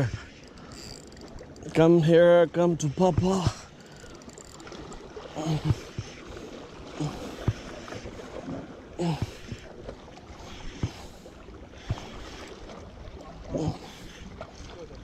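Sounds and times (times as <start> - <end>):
wind and sea noise: 0.0 - 15.0
spinning reel being cranked: 0.4 - 1.9, 3.7 - 4.7.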